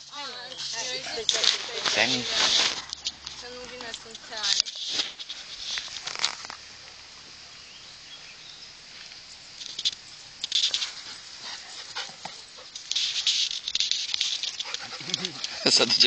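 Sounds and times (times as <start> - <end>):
dogs scuffling: 0.3 - 6.5, 10.5 - 16.0.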